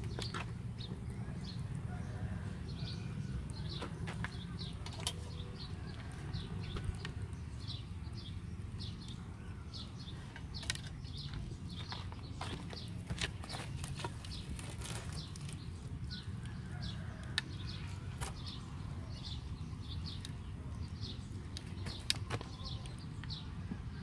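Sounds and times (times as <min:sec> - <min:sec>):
small birds chirping: 0:00.0 - 0:24.0
wood fire crackling: 0:12.8 - 0:16.6.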